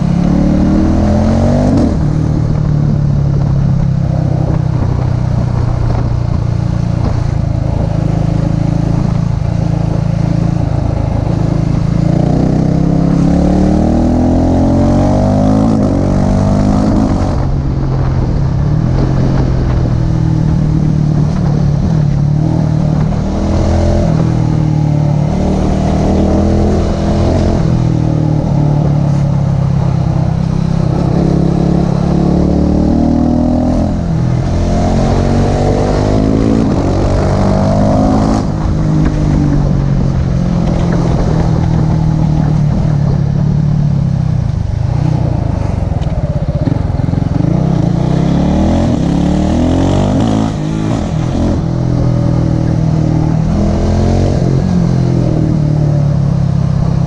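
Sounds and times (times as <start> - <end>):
motorcycle engine revving: 0.0 - 57.0
wind noise: 0.0 - 57.0.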